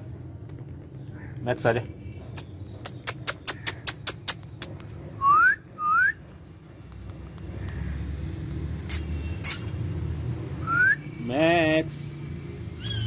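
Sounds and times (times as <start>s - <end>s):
parakeet whistling: 10.6s - 11.1s.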